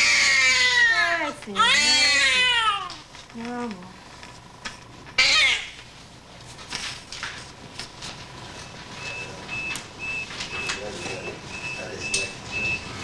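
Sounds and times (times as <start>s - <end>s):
newborn baby crying: 0.0s - 3.1s, 5.2s - 5.8s.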